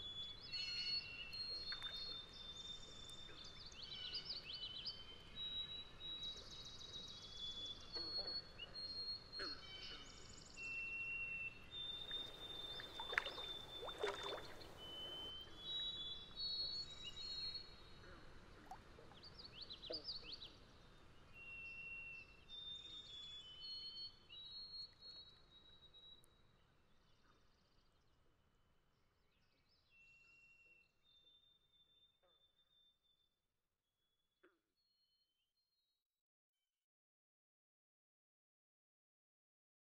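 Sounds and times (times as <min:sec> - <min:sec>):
high whistled calls: 0:11.6 - 0:15.6.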